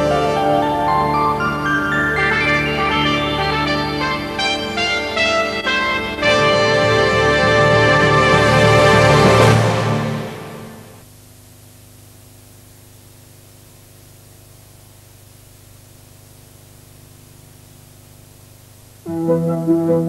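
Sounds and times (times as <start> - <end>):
background music: 0.0 - 11.0, 19.0 - 20.0
recording hiss: 0.0 - 20.0
faint hum: 9.2 - 20.0.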